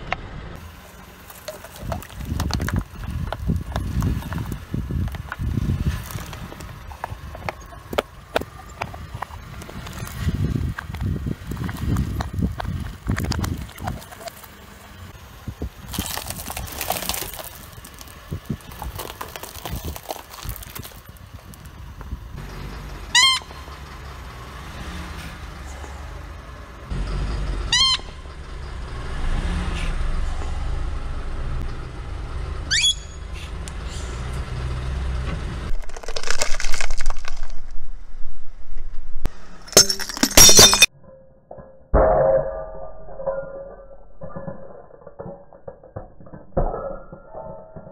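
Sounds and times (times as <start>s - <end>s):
low engine rumble: 0.0s - 40.9s
plastic creaking under tyre: 0.9s - 14.7s, 15.4s - 22.3s, 35.7s - 37.8s
loud crunching crash: 15.6s - 21.7s, 35.7s - 37.9s, 39.3s - 40.9s
squeaky toy squealing: 32.7s - 33.2s.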